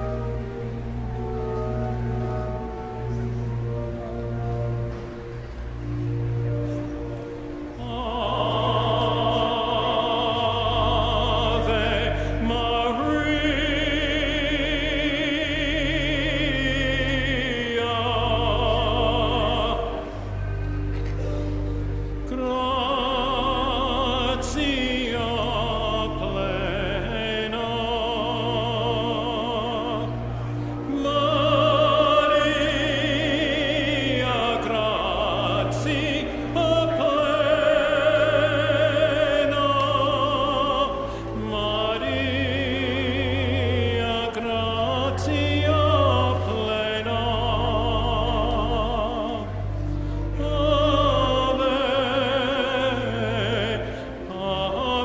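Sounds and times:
classical singing with vibrato: 0.0s - 55.0s
sustained low bass notes: 0.0s - 55.0s.

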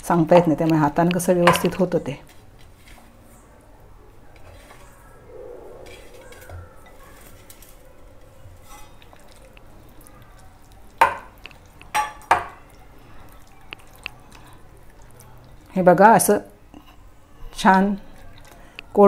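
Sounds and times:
hand squishing batter: 7.2s - 15.9s.

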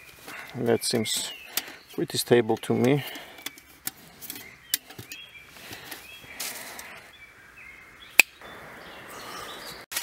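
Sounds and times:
dry leaves rustling: 5.3s - 6.9s.

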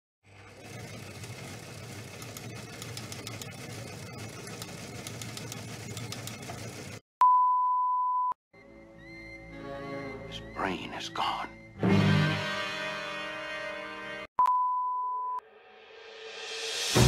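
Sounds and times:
steady test tone beep: 7.2s - 8.4s, 14.4s - 15.4s.

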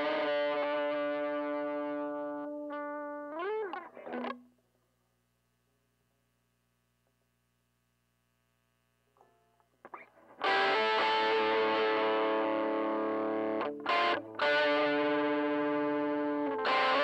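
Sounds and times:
distorted electric guitar chords: 0.0s - 4.6s, 9.9s - 17.0s
guitar string and pick noises: 0.0s - 4.6s, 9.2s - 17.0s.

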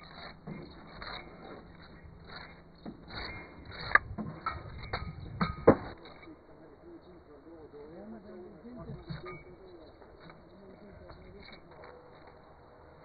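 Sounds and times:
trowel scraping mortar on brick: 0.0s - 4.9s.

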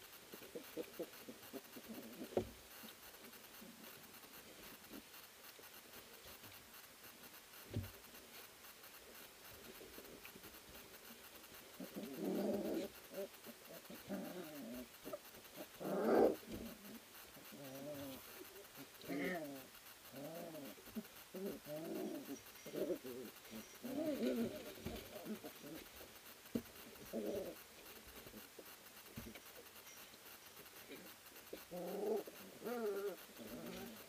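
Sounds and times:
puppies yipping and growling: 11.8s - 16.6s.

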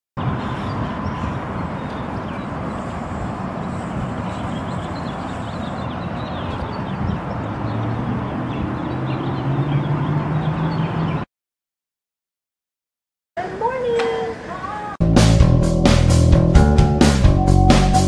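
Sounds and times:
road traffic: 0.2s - 11.3s.

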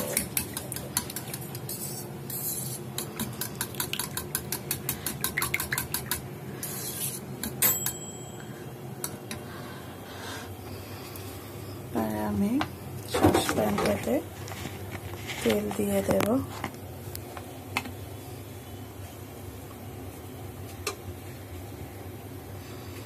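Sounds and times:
sharp ringing metallic clink: 7.6s - 8.5s.

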